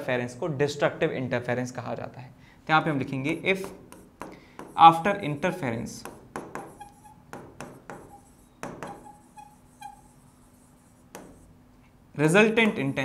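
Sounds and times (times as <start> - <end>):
pen tapping on screen: 3.6 - 4.8, 6.0 - 9.2, 11.1 - 11.5
pen scratching on screen: 6.0 - 11.6
faint squeaks of pen: 6.6 - 7.2, 8.0 - 11.5.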